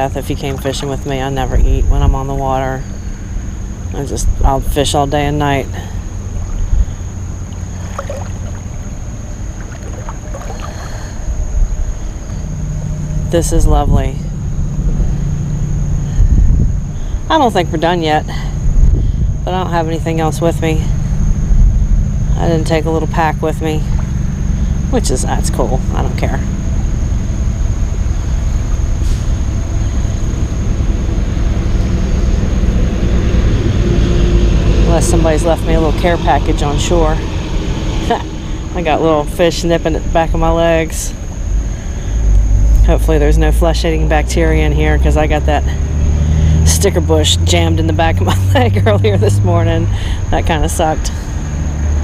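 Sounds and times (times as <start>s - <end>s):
wind buffeting microphone: 0.0s - 43.0s
water sloshing around wading legs: 4.9s - 12.4s.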